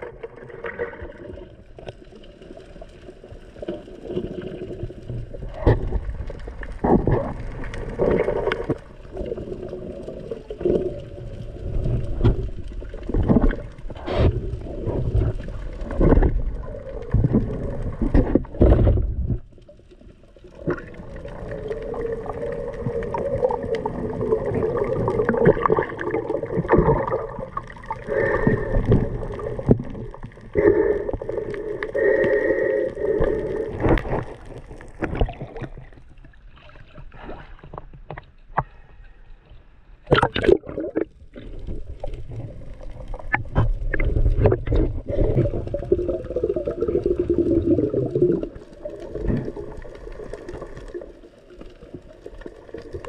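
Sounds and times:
water gurgling underwater: 0.0 - 37.6, 40.0 - 53.0.

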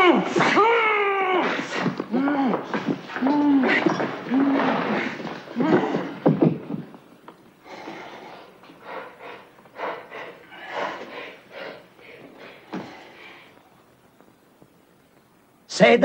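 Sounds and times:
man panting heavily: 7.6 - 13.6.

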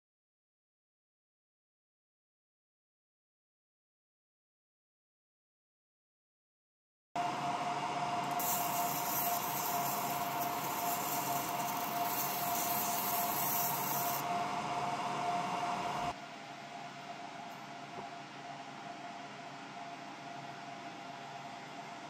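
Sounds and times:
laser engraver hum and whine: 7.2 - 22.0
high hiss of laser marking: 8.4 - 14.2.

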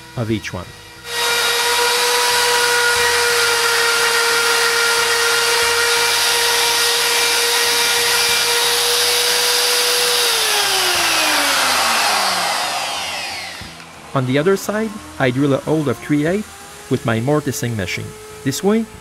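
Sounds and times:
router whining: 0.0 - 19.0.

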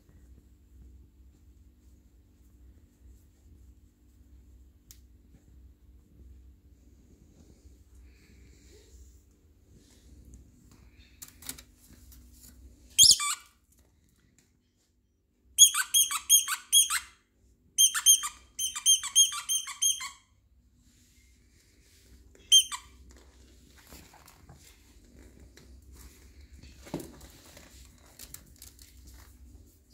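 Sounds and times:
dog toy squeaking: 13.0 - 13.5, 15.6 - 17.2, 17.8 - 20.3, 22.4 - 22.9.

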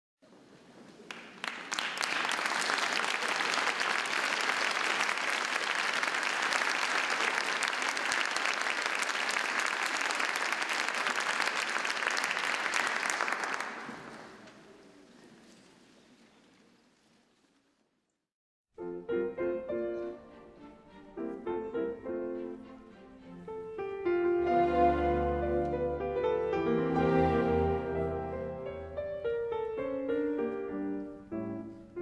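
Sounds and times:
audience applauding: 1.0 - 14.6.

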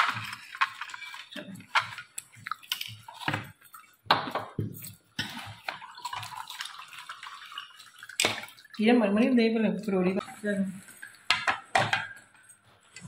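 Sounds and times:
spoon scraping plastic bowl: 0.0 - 6.7
dishes clinking: 11.3 - 12.3.

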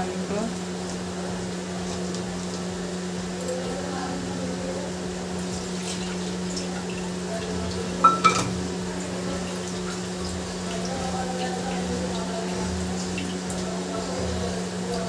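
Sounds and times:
steel kitchenware clinking: 8.0 - 8.6.

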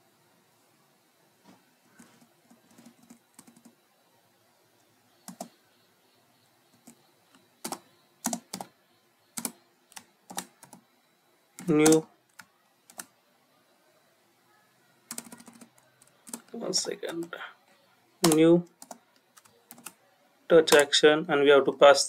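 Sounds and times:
keyboard typing: 1.9 - 3.8, 5.2 - 5.6, 6.7 - 10.8, 11.6 - 13.2, 15.1 - 17.3, 18.2 - 20.0, 20.6 - 21.0.

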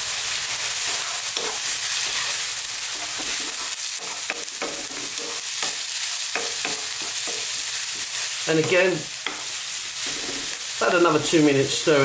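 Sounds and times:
food sizzling in hot oil: 0.0 - 12.0
wooden spatula scraping: 0.8 - 5.8.

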